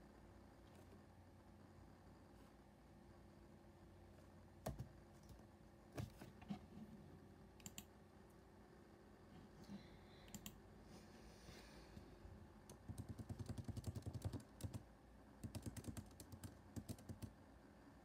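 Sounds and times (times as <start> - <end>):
computer keyboard clicks: 7.6 - 7.9, 12.7 - 14.8, 15.4 - 17.3.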